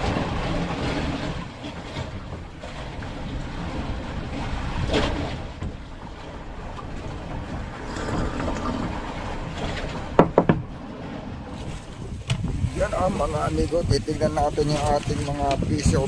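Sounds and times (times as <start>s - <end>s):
sea noise: 0.0s - 16.0s
wind: 0.0s - 16.0s
wind buffeting microphone: 0.0s - 16.0s
sharp knocks: 10.2s - 10.7s.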